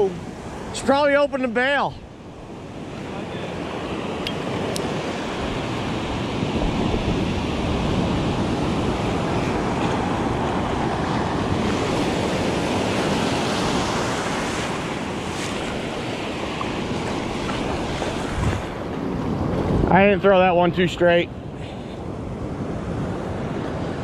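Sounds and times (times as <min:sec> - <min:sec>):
ocean surf breaking: 0:00.0 - 0:24.0
wind on microphone: 0:03.6 - 0:20.7.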